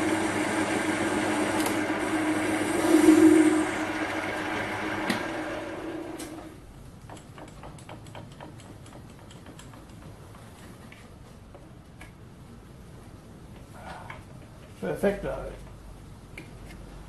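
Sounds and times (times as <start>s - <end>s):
metal lathe running: 0.0s - 6.5s.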